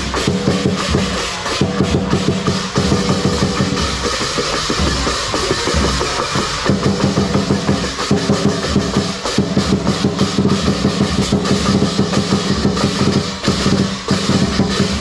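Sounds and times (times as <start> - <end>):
cymbals clashing: 0.0 - 15.0
drum beaten fast: 0.0 - 15.0.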